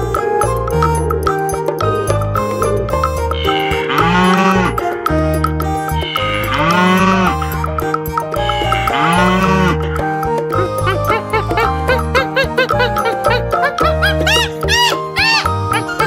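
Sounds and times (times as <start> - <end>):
cow mooing: 3.4 - 4.8, 6.0 - 7.5, 8.7 - 9.9.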